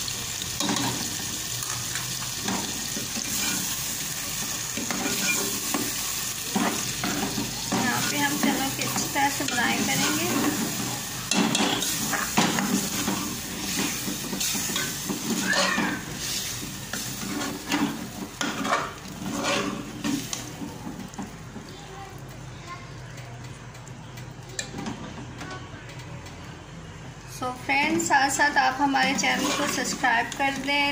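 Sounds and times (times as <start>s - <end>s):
steady sizzle: 0.0s - 22.5s, 27.6s - 30.9s
metal spoon scraping a pot: 4.8s - 5.6s, 17.2s - 20.3s, 28.9s - 30.6s.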